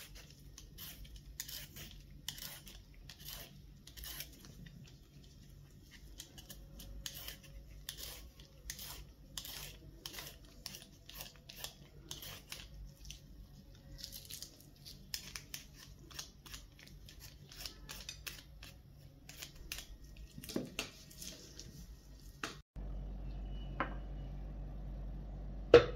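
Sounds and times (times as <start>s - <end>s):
peeler scraping a carrot: 0.0s - 20.6s.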